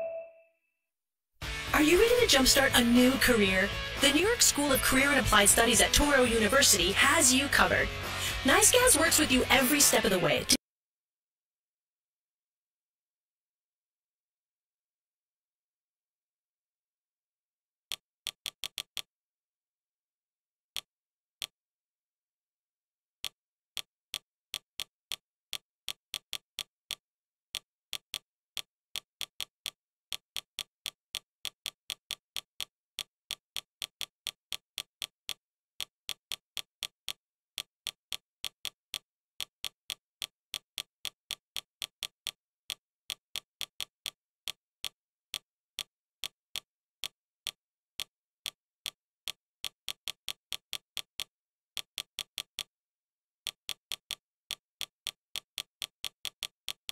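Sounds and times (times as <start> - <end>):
menu navigation clicks: 0.0 - 0.4.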